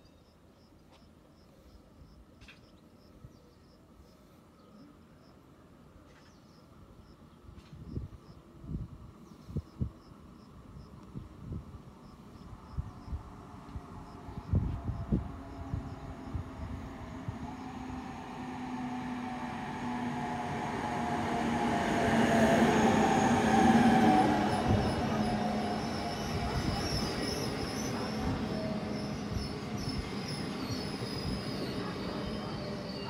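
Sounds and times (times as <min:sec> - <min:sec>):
passenger train arriving: 0:11.3 - 0:33.0
high squeal of brakes: 0:25.8 - 0:33.0.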